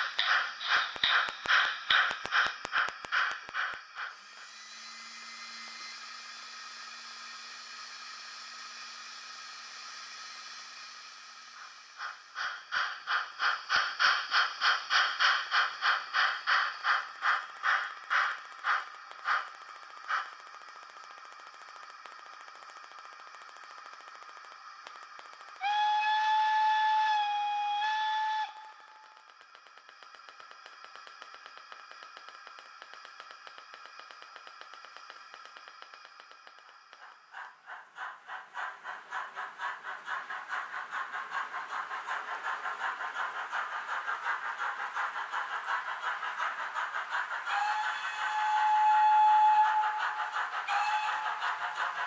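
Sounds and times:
steam chuffing: 0.0 - 52.0
model train whistle: 25.6 - 29.2, 47.4 - 51.5.

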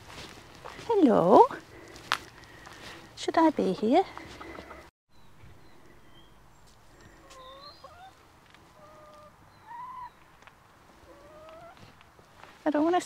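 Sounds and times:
hens clucking: 3.9 - 4.9, 6.9 - 10.3, 10.9 - 12.0.

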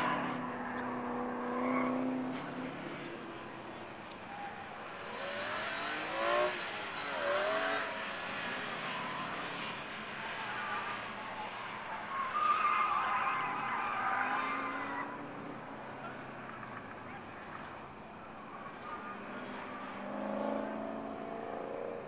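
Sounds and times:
car engine revving: 5.1 - 11.9, 18.8 - 22.0
tyres squealing: 12.0 - 15.2.

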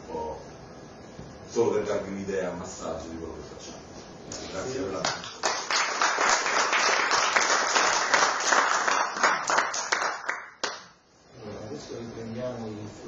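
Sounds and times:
audience applauding: 5.0 - 10.9.

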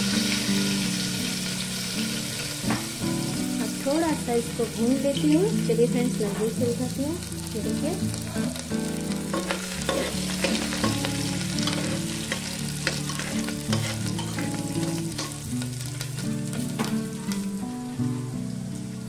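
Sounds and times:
spices sizzling in hot oil: 0.0 - 19.0
metal spatula scraping pot: 9.3 - 11.0, 11.6 - 15.4.

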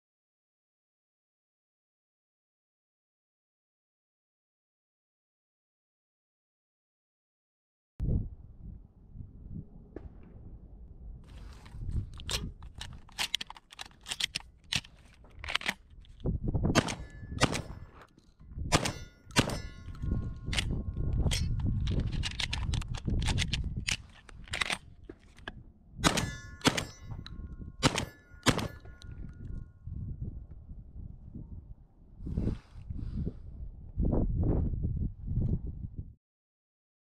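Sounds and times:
shells clicking into magazine: 12.0 - 16.2, 16.8 - 25.5
shotgun shots: 16.7 - 18.0, 18.7 - 19.9, 26.0 - 27.2, 27.8 - 29.0
metallic ringing: 18.8 - 21.6, 26.1 - 29.6.

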